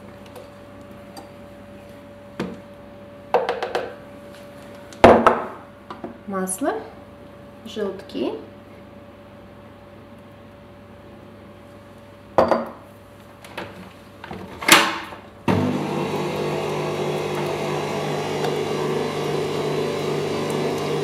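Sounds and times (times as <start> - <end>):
stand mixer motor running: 15.5 - 21.0.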